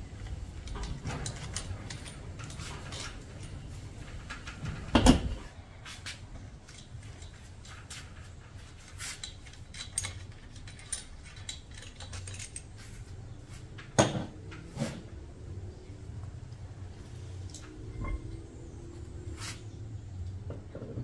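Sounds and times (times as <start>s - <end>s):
metallic clicks and clinks: 9.2s - 12.8s.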